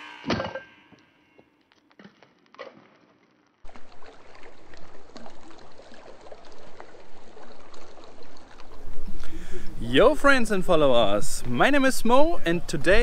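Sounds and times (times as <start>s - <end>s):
stream splashing down a channel: 3.6s - 12.2s.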